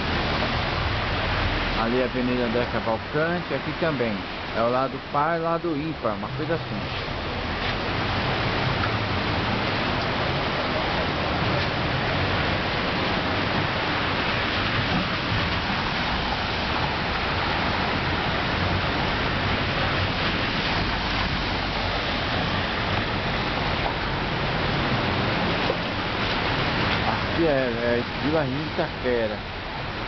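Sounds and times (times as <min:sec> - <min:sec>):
heavy rain on wet street: 0:00.0 - 0:30.0.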